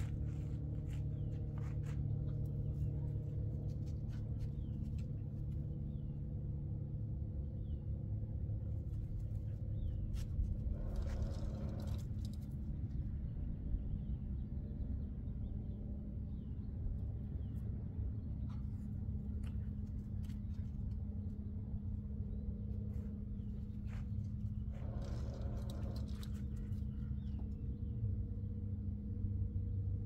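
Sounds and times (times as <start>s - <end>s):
machine humming: 10.6s - 12.6s, 19.0s - 29.3s.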